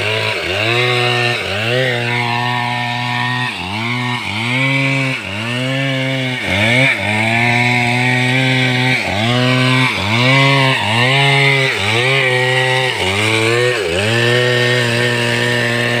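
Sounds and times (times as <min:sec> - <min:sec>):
chainsaw cutting through log: 0:00.0 - 0:16.0.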